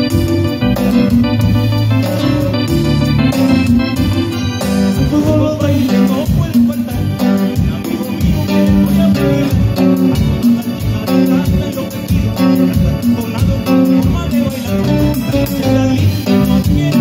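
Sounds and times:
drums keeping steady beat: 0.0 - 17.0
live band playing latin music: 0.0 - 17.0.

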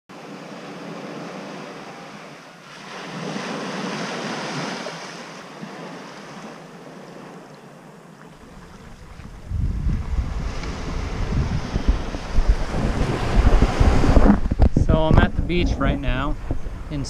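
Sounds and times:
waves washing onto sand: 0.2 - 17.0
wind on microphone: 8.4 - 17.0.

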